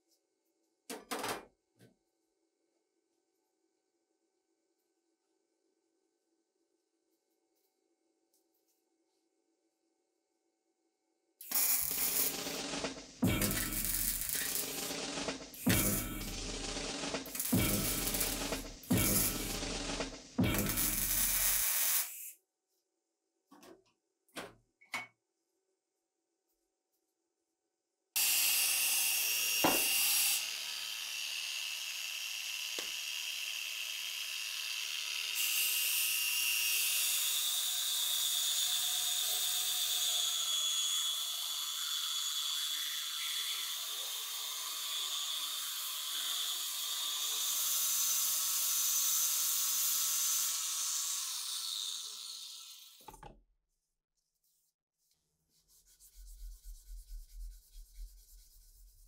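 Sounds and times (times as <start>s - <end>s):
grinder whining and rasping on steel: 11.4s - 22.4s, 28.2s - 53.3s.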